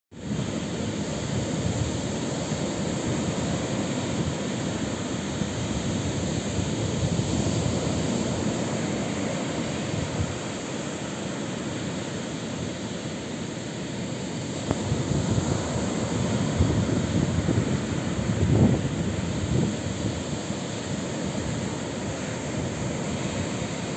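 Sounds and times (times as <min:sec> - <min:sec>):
surf breaking on sandy beach: 0:00.2 - 0:23.9.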